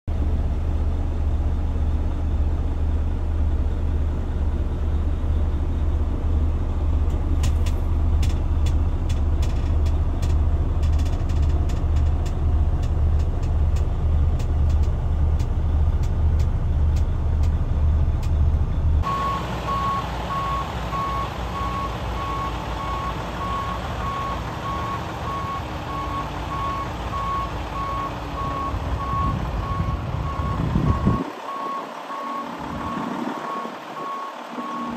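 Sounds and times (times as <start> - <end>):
diesel truck engine rumble: 0.1 - 34.9
backup alarm beeping: 19.0 - 34.9.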